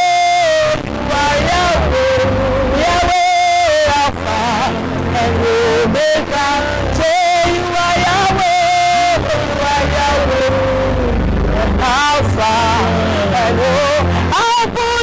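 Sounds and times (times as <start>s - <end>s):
person singing long held notes: 0.0s - 15.0s
steady bass accompaniment: 0.0s - 15.0s.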